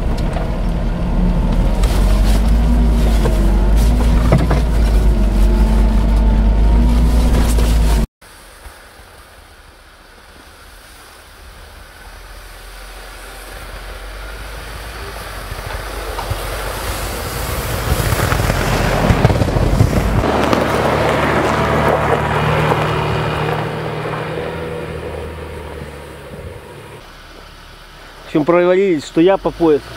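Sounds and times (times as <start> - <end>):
snow and branches crackling: 1.4 - 29.4
car engine driving past: 12.4 - 28.3.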